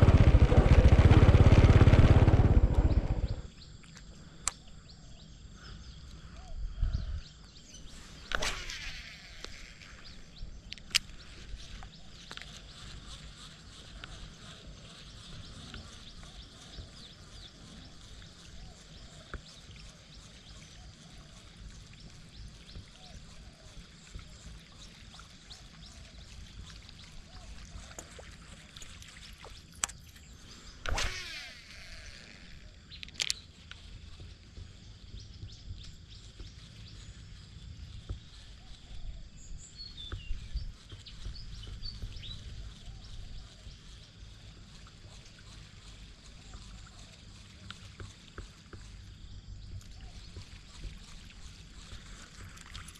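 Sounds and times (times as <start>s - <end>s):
short whirr falling in pitch: 0.0s - 3.6s, 8.2s - 10.3s, 30.8s - 32.8s
wind rumbling on microphone: 0.0s - 3.7s, 6.4s - 24.9s, 30.7s - 52.9s
fishing reel clicks: 8.2s - 12.7s, 29.8s - 33.8s.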